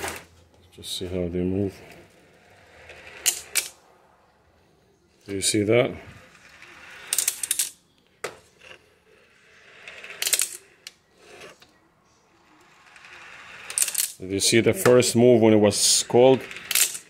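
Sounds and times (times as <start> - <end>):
steel balls rolling in metal channels: 0.9 - 3.8, 5.2 - 7.8, 8.6 - 11.6, 12.3 - 17.0
steel balls clacking together: 6.4 - 7.8, 12.7 - 14.2, 15.8 - 17.0.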